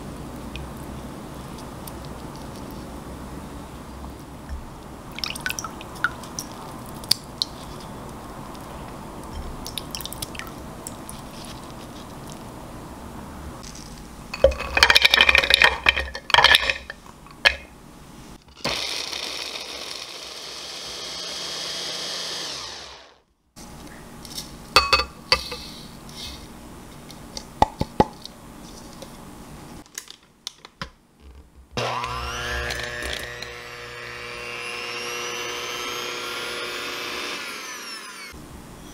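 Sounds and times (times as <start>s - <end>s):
food processor grinding: 18.6s - 23.2s, 31.8s - 38.4s.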